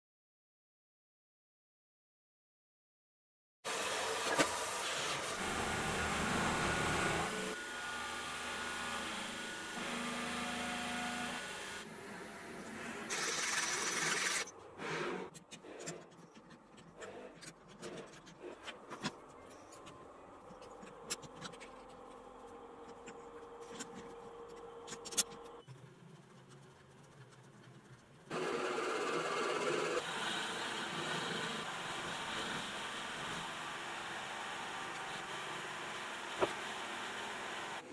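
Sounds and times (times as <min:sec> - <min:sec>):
lathe running: 0:28.3 - 0:37.8.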